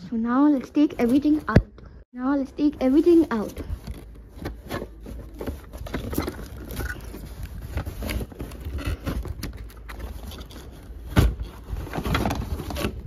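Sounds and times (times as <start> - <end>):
cardboard rustling and scraping: 2.6 - 13.0.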